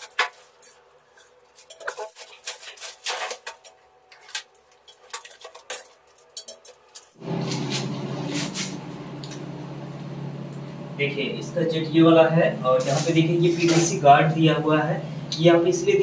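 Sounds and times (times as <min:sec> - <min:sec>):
metal hose clinking and rattling: 0:00.0 - 0:07.2
steady low hum: 0:07.0 - 0:16.0.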